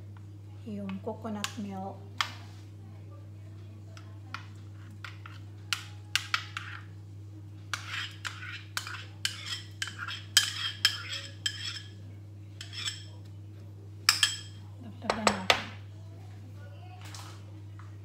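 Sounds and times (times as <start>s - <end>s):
spoon scraping ceramic bowl: 6.2s - 6.9s, 7.7s - 12.0s, 12.6s - 13.2s.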